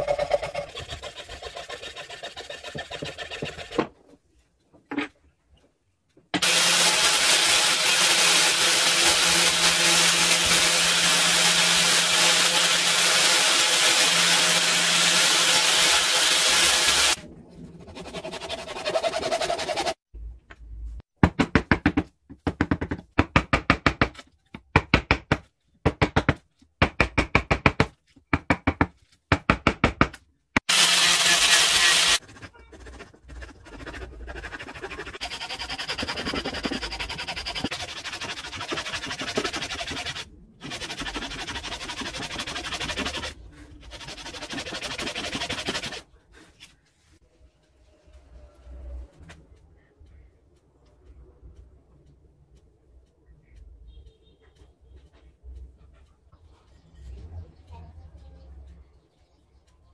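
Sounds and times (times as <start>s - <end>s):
angle grinder sanding wood: 0.0s - 3.8s, 6.4s - 17.2s, 17.9s - 20.0s, 30.7s - 32.2s, 33.7s - 46.0s
hand sanding strokes on wood: 17.9s - 20.0s, 33.7s - 46.0s.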